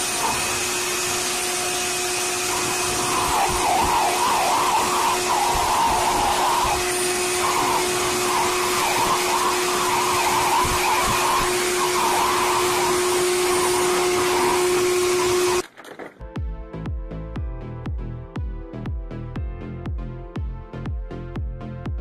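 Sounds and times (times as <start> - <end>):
electric blower motor humming: 0.0 - 15.6.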